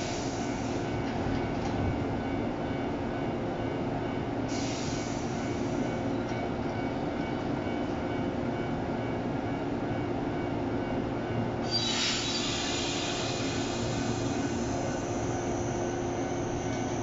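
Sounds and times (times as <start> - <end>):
electric train humming: 0.0 - 17.0
compressed air hiss: 11.7 - 15.0.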